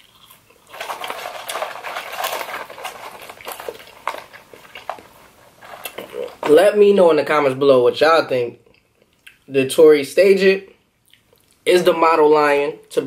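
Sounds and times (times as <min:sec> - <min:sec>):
paper carton rustling and crinkling: 0:00.7 - 0:06.8.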